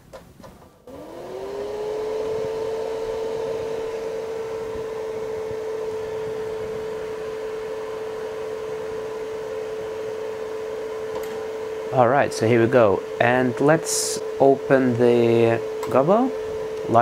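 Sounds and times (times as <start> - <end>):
cooling fan hum: 0.0 - 17.0.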